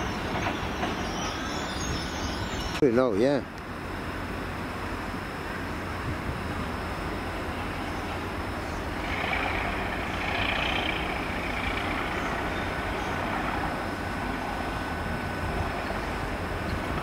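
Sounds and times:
high hissing squeal: 0:00.0 - 0:02.8
diesel locomotive rumble: 0:00.0 - 0:17.0.

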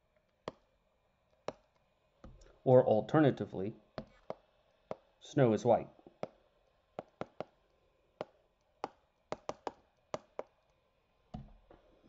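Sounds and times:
stylus clicking on tablet screen: 0:01.3 - 0:02.5, 0:07.0 - 0:10.8.

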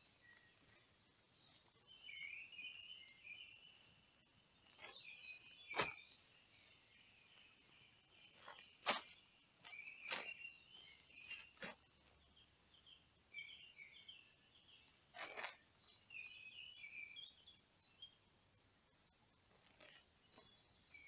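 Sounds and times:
birds chirping and singing: 0:00.0 - 0:18.6, 0:19.6 - 0:21.0
boots rustling and knocking: 0:04.6 - 0:06.2, 0:08.2 - 0:12.3.

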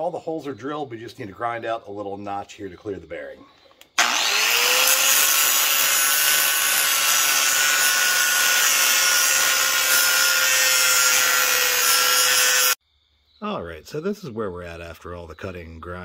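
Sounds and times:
angle grinder grinding steel: 0:04.0 - 0:12.8.

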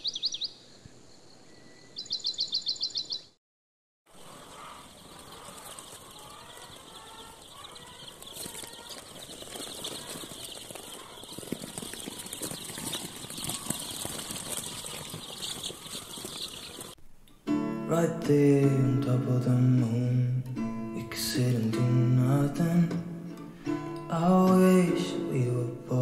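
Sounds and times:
baby chicks peeping: 0:04.2 - 0:17.0.

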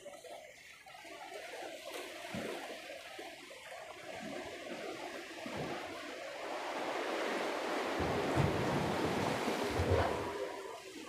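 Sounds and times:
waves splashing against rocks: 0:03.8 - 0:11.0
wind buffeting microphone: 0:05.4 - 0:11.0.

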